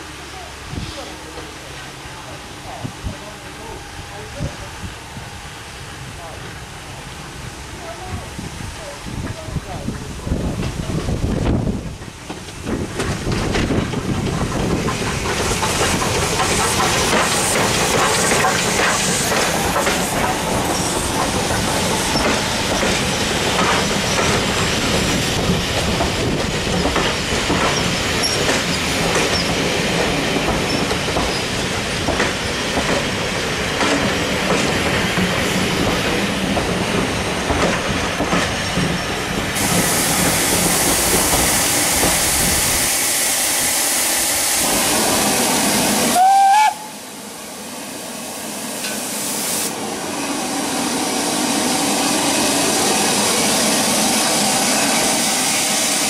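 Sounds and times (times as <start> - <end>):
steam train passing: 0.0 - 56.0
wheels clacking over rail joints: 9.2 - 42.2.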